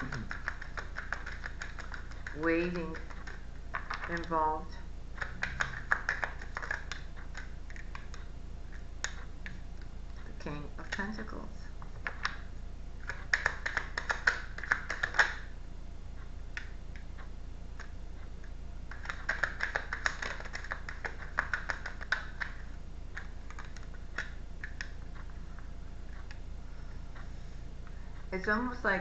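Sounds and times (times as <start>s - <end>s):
cards shuffling: 5.2s - 8.2s.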